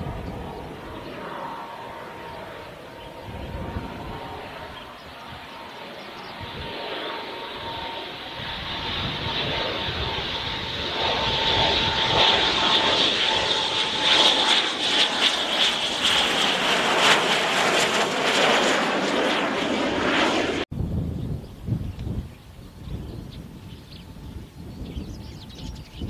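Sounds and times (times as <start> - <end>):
jet engines whining overhead: 0.0 - 26.0.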